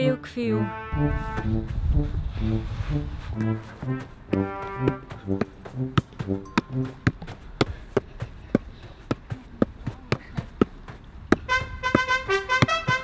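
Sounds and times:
brass-like background music: 0.0s - 7.4s, 11.4s - 13.0s.

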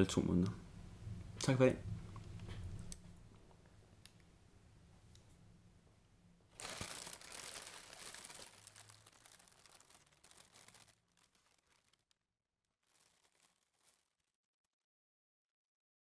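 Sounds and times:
tissue paper crinkling: 6.5s - 14.4s.

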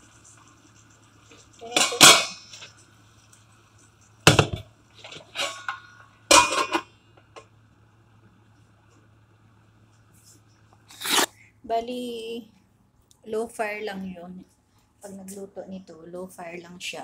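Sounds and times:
low steady hum: 0.0s - 17.0s
pot lid clanking on wok: 1.7s - 2.4s, 5.4s - 6.8s.

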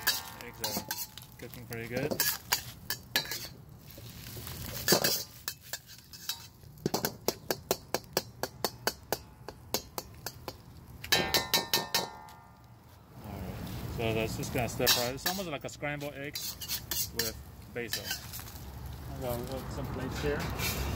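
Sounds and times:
metal spatula clanking on wok: 0.0s - 1.2s, 1.8s - 3.6s, 4.8s - 12.4s, 14.8s - 15.6s, 16.3s - 18.2s.

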